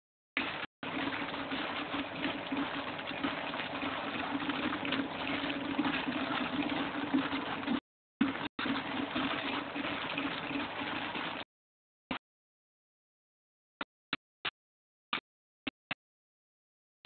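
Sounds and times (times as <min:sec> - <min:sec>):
gas bubbling through water: 0:00.4 - 0:11.4.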